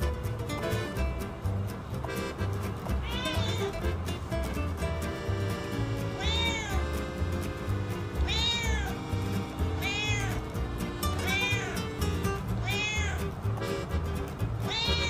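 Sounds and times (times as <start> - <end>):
cat meowing: 3.0 - 3.7, 6.2 - 6.8, 8.2 - 9.0, 9.8 - 10.4, 11.2 - 11.9, 12.6 - 13.3, 14.6 - 15.0.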